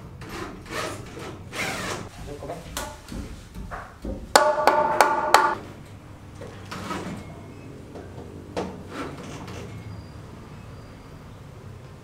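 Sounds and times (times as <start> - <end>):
soft knocks of building work: 2.7 - 5.6
hammer striking metal: 4.3 - 5.6.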